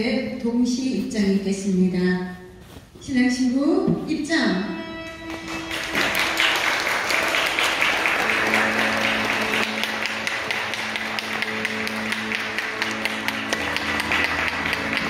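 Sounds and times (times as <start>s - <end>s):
music with long held notes: 4.6s - 15.0s
people applauding: 5.2s - 15.0s.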